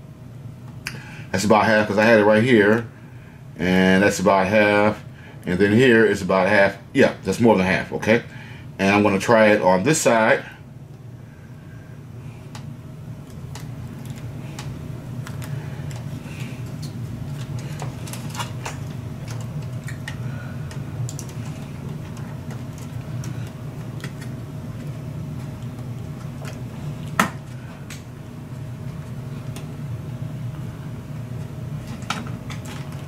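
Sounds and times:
steady low hum: 0.0s - 33.0s
tape and ribbon cable rustling: 13.3s - 27.2s.

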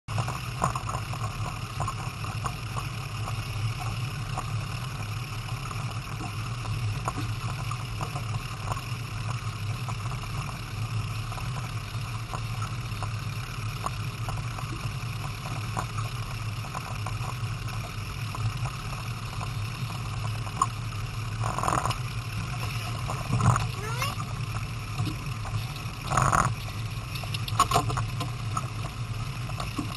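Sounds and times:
boat engine humming: 0.1s - 29.9s.

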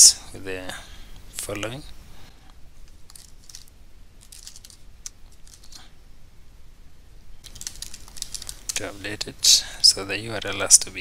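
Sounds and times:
computer keyboard typing: 3.1s - 5.8s, 7.4s - 8.8s.

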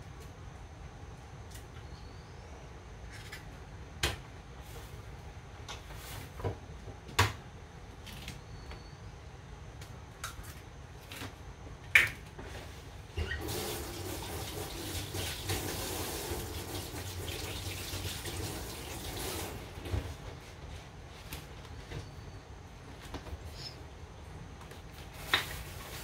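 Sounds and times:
kitchen tap running into sink: 13.2s - 19.8s.

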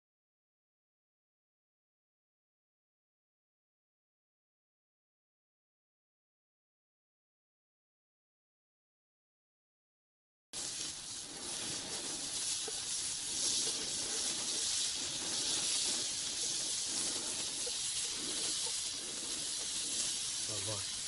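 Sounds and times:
pork fat sizzling in a frying pan: 10.6s - 21.0s
small crackles: 10.6s - 21.0s.

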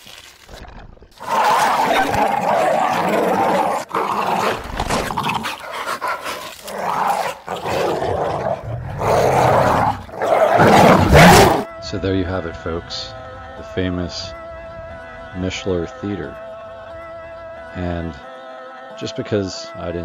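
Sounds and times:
monster growls and snarls: 0.5s - 11.7s.

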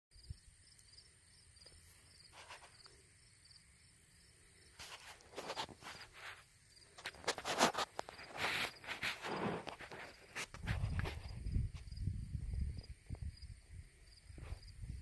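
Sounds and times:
field insects chirping: 0.1s - 15.0s
rustling noise: 1.8s - 3.0s, 4.7s - 12.0s, 14.3s - 15.0s.

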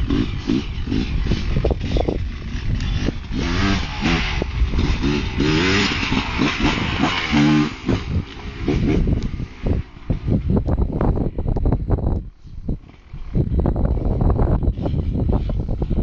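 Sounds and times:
dirt bike engine revving: 0.0s - 11.5s.

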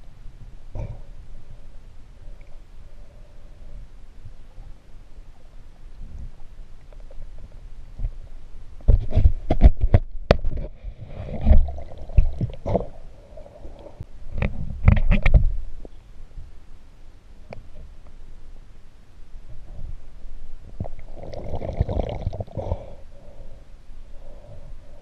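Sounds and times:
muffled underwater gurgling: 20.7s - 23.0s.

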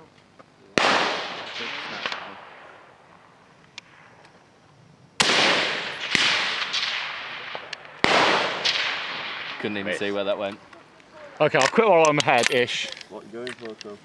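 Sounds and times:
rifle shots echoing: 0.8s - 4.4s, 5.2s - 11.4s.

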